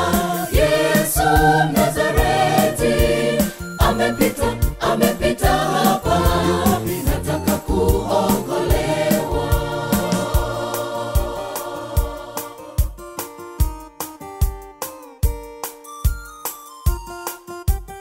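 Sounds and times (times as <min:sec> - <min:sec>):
gospel choir singing: 0:00.0 - 0:13.0
steady drum beat: 0:00.0 - 0:15.6
keyboard: 0:00.0 - 0:18.0.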